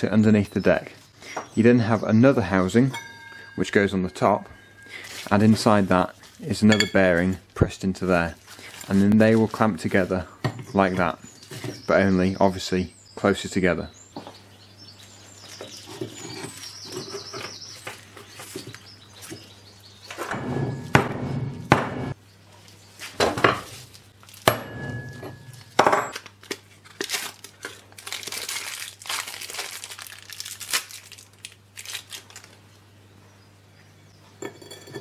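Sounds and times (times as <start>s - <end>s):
sharp metal knocks: 20.2s - 22.2s, 24.5s - 26.2s.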